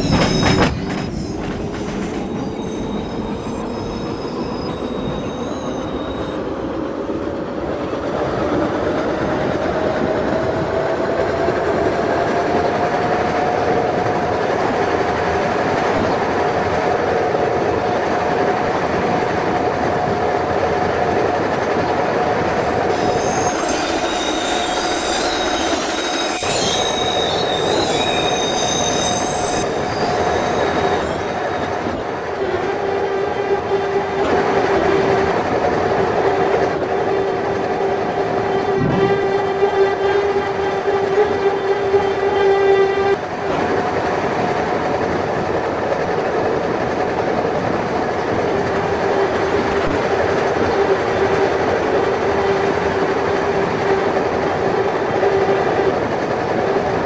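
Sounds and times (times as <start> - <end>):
high-pitched wheel squeal: 0.0 - 6.5, 22.9 - 32.1
train motor whine: 0.0 - 6.6, 22.9 - 35.2
wheels rumbling on rail: 0.0 - 57.0.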